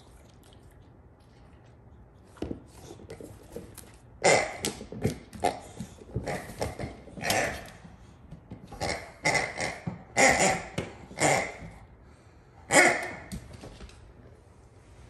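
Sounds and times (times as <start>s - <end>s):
dog playing with latex toy: 1.4s - 11.8s.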